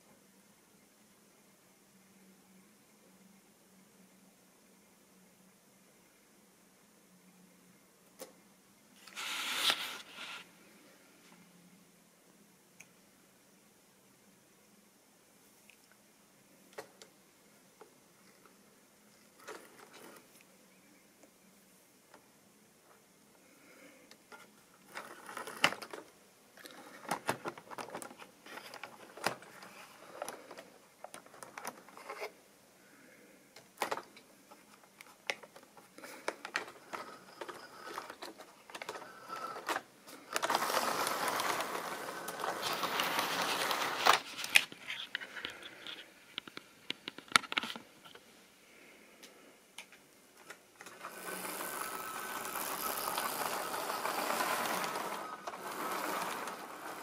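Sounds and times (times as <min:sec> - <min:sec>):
wheels clicking over rail joints: 0:50.8 - 0:57.0
model train running on track: 0:51.0 - 0:57.0.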